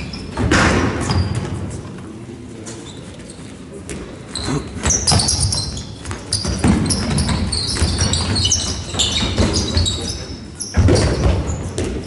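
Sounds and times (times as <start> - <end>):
shoe squeaks on hall floor: 0.0 - 1.8, 2.6 - 12.0
ball bouncing: 4.8 - 9.8, 10.8 - 12.0.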